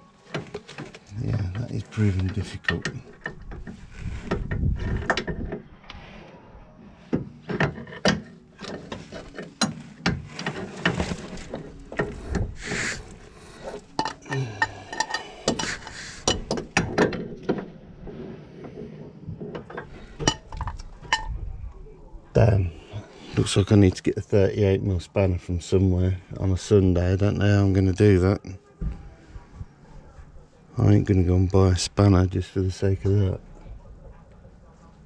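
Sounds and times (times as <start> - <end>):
metal clicks and knocks: 0.3 - 5.7, 7.1 - 17.8, 18.6 - 21.4
spanner clinking and scraping on metal: 7.4 - 21.4.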